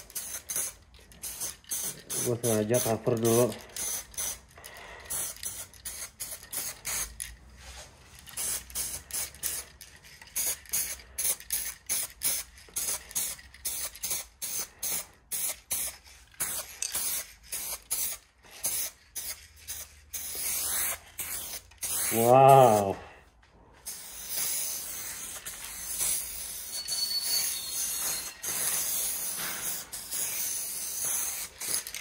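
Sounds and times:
aerosol paint can spraying: 0:00.0 - 0:04.4, 0:05.1 - 0:07.2, 0:08.2 - 0:23.0, 0:23.8 - 0:32.0.

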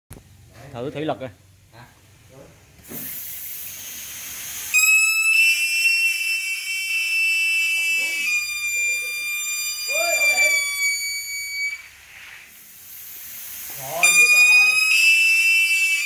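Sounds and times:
compressed air hissing: 0:02.8 - 0:16.0
loud high whistle: 0:03.0 - 0:12.6, 0:13.7 - 0:16.0.

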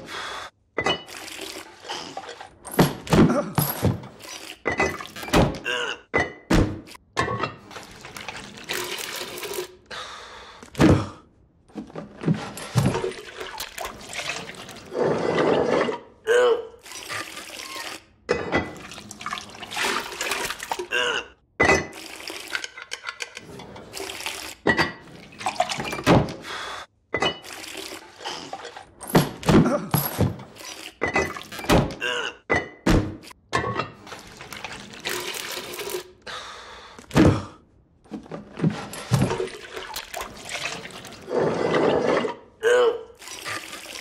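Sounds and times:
water sloshing and pouring: 0:00.9 - 0:03.0, 0:03.8 - 0:05.3, 0:07.6 - 0:09.8, 0:11.8 - 0:16.1, 0:16.8 - 0:20.9, 0:21.9 - 0:26.4, 0:27.3 - 0:29.4, 0:30.1 - 0:31.7, 0:34.0 - 0:36.2, 0:38.1 - 0:42.5, 0:43.1 - 0:44.0.

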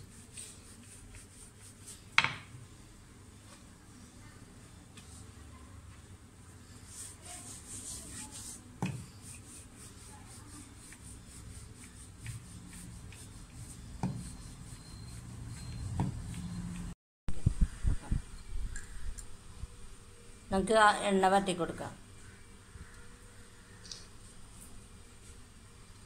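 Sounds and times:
rolling pin rubbing on dough: 0:00.0 - 0:02.2, 0:06.6 - 0:16.9.

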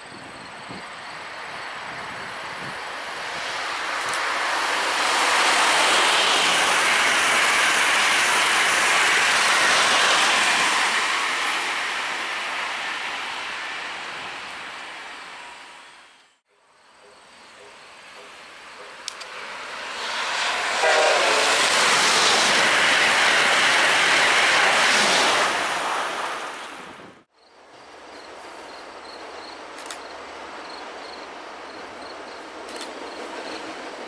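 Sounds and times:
commuter train rumble: 0:00.0 - 0:16.3, 0:17.0 - 0:34.0
high-speed train rushing past: 0:00.0 - 0:16.4, 0:17.4 - 0:34.0
train horn note: 0:20.6 - 0:21.7.

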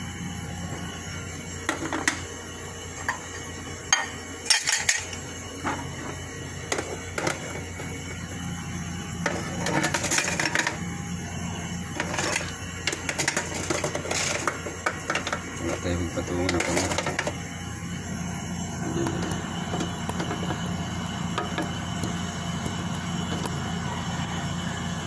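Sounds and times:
kitchen items clattering: 0:03.9 - 0:07.7, 0:09.2 - 0:10.8, 0:12.0 - 0:17.4.

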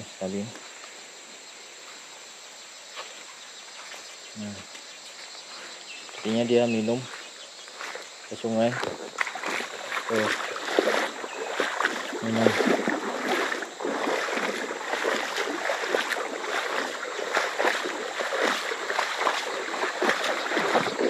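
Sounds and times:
shallow river splashing over stones: 0:09.0 - 0:21.0.

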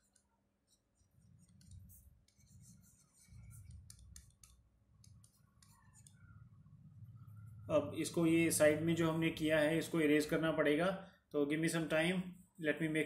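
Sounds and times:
taps and scratches on touchscreen: 0:00.0 - 0:06.7.

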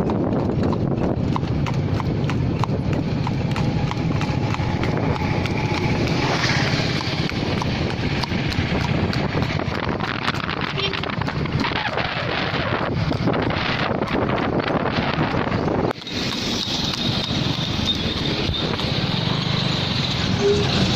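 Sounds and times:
horse hooves trotting on asphalt: 0:00.0 - 0:20.9
motorbike engine hum: 0:00.0 - 0:20.9
wind on microphone: 0:00.0 - 0:20.9.

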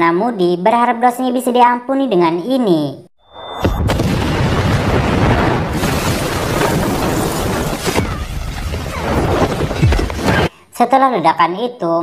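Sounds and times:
bomb explosion rumble: 0:03.4 - 0:10.5.

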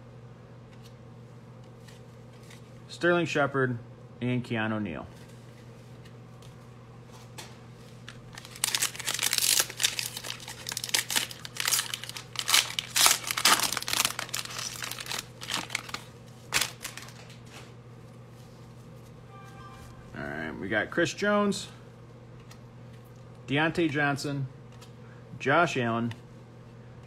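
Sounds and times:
steady low hum: 0:00.0 - 0:27.0
foil wrapper tearing and crinkling: 0:08.1 - 0:17.4.

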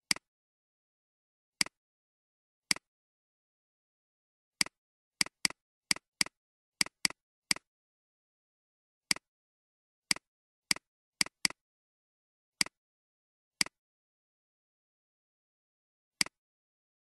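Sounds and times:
computer mouse button clicking: 0:16.2 - 0:16.4.

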